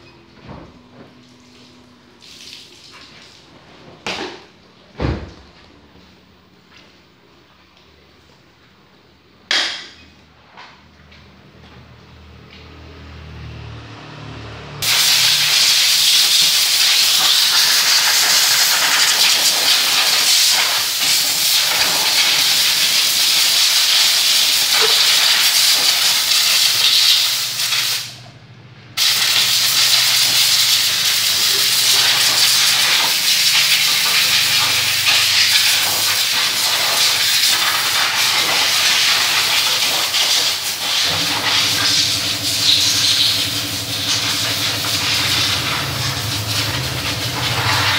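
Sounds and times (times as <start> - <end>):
compressed air hissing from blow gun: 14.8 - 28.2, 29.0 - 47.9.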